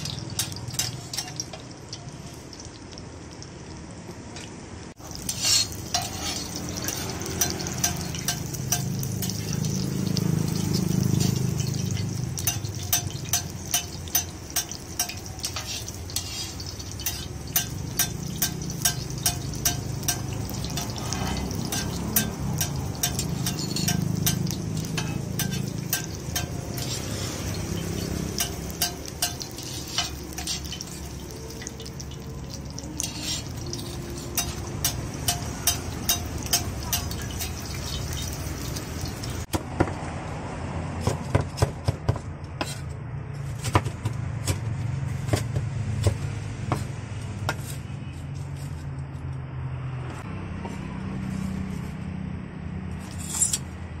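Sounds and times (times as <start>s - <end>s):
metal spatula and tongs clinking: 0.0s - 2.3s, 5.0s - 39.5s, 53.0s - 53.8s
food sizzling on griddle: 0.0s - 3.7s, 4.9s - 39.5s.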